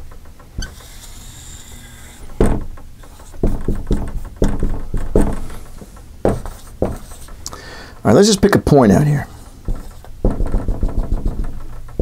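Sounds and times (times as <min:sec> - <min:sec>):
marker strokes on whiteboard: 0:00.6 - 0:07.4, 0:08.0 - 0:12.0
marker tapping on whiteboard: 0:00.6 - 0:07.4, 0:09.6 - 0:12.0.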